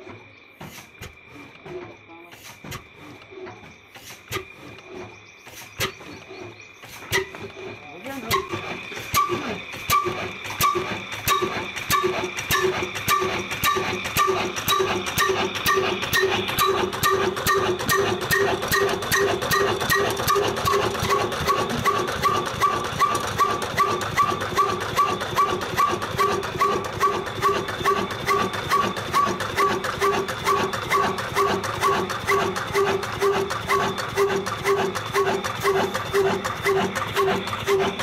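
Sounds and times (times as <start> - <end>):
diesel engine exhaust beats: 0.0 - 38.0.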